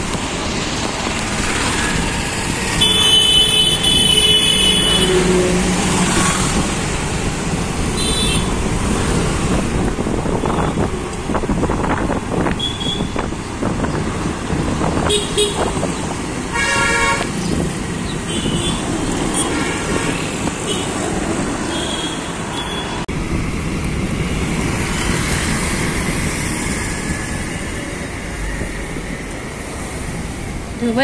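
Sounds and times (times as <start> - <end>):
road traffic: 0.0 - 31.0
car horns honking: 2.8 - 5.7, 8.0 - 8.6, 12.6 - 13.3, 15.0 - 15.8, 16.5 - 17.3.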